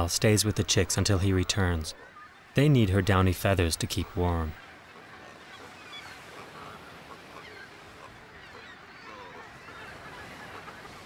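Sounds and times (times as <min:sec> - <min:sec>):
seabirds calling: 0:00.0 - 0:11.0.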